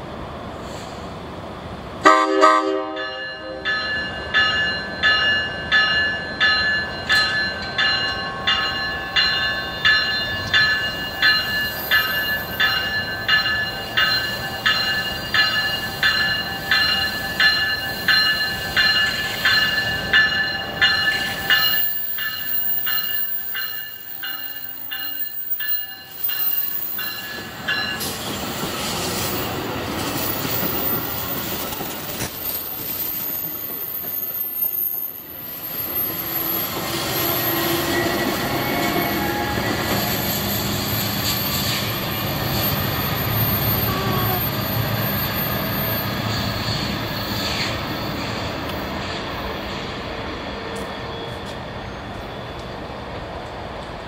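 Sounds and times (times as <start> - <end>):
train cars rumbling by: 0.0 - 54.0
train horn blast: 2.0 - 3.6, 37.2 - 40.3
train bell ringing: 2.7 - 31.7, 33.4 - 52.6.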